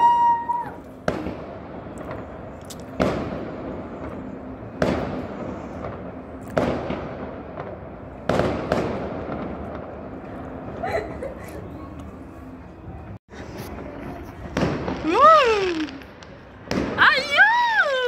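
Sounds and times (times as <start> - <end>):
small firework pops: 14.5 - 17.0.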